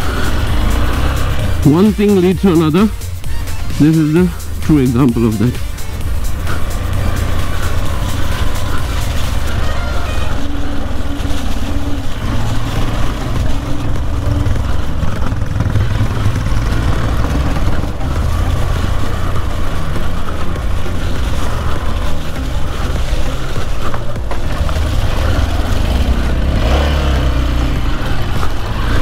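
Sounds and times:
motorcycle engine rumble: 0:00.0 - 0:29.0.

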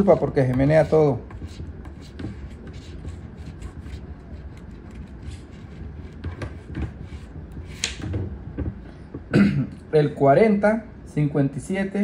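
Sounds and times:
coin scratching lottery ticket: 0:00.0 - 0:07.9.

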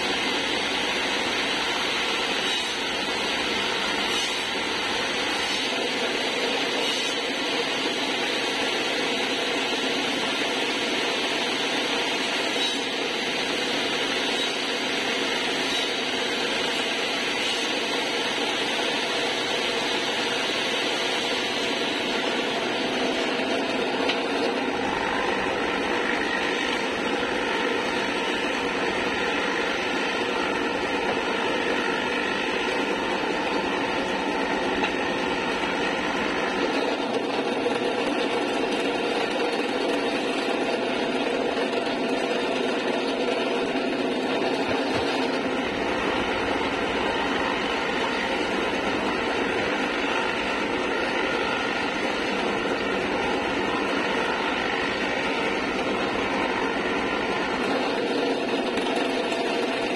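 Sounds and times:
drill bit cutting into wood: 0:00.0 - 0:07.4, 0:12.4 - 0:59.9
drill press motor running: 0:00.0 - 0:59.9.

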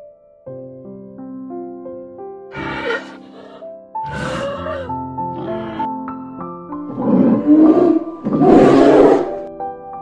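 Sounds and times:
background music with sustained tones: 0:00.0 - 0:10.0
bear roaring: 0:02.5 - 0:05.9, 0:06.9 - 0:09.4.

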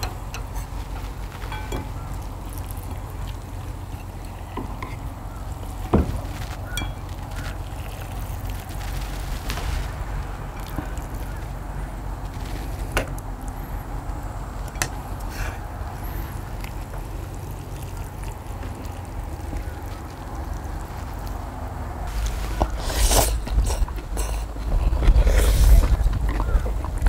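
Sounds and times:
steady low rumble: 0:00.0 - 0:27.0
wet slurping of noodles: 0:22.2 - 0:26.6.

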